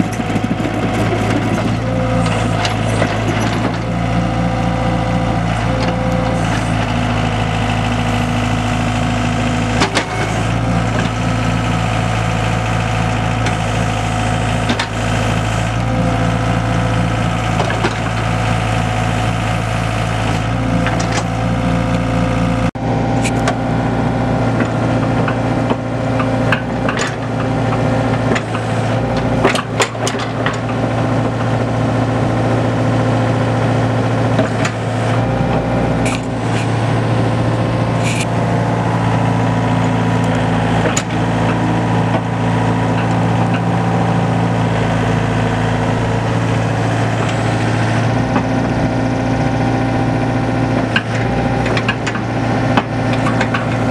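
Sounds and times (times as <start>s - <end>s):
excavator diesel engine running: 0.0s - 53.9s
clanks and knocks: 51.0s - 53.9s.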